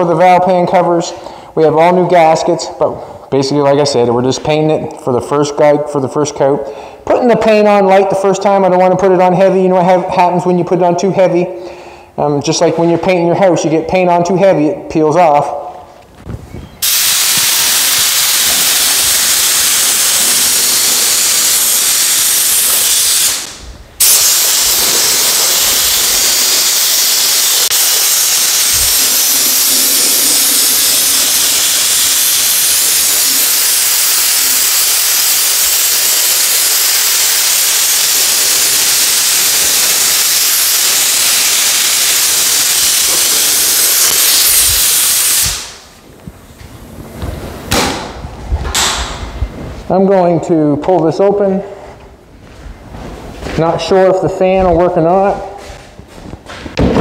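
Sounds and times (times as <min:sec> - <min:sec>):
paint spray gun hissing: 0:16.8 - 0:46.0.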